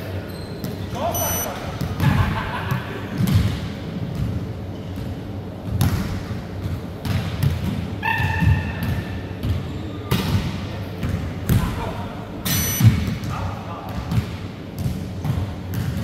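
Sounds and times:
shoe squeak: 0.2s - 1.5s, 12.5s - 12.8s.

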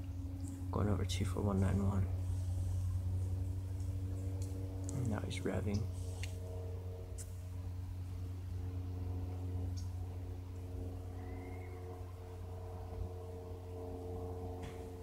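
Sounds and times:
light aircraft engine revving: 0.0s - 15.0s.

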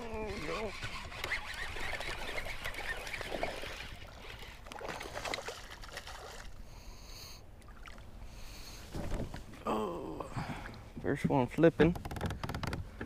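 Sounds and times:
water splashing and lapping: 0.0s - 6.7s, 7.6s - 9.6s
knocks and clicks from boat: 10.4s - 13.0s.

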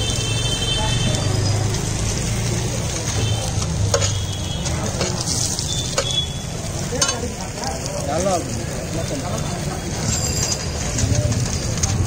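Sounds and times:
food sizzling in oil: 0.0s - 12.0s
utensil tapping metal pan: 3.6s - 7.4s.

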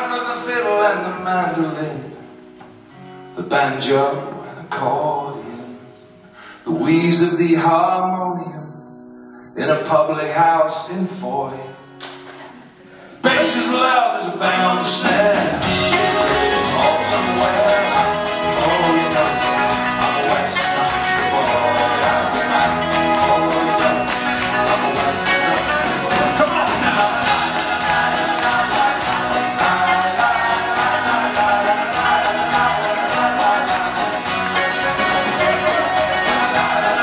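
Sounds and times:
strummed acoustic guitar: 13.2s - 37.0s
drums: 14.4s - 37.0s.

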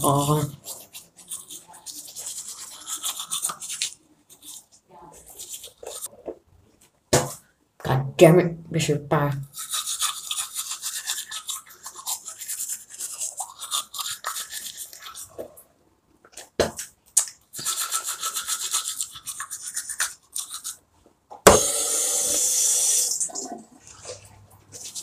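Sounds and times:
toothbrush scrubbing teeth: 0.0s - 6.1s, 9.4s - 15.6s, 16.8s - 20.8s, 21.6s - 25.0s
tap water running: 21.5s - 23.8s.

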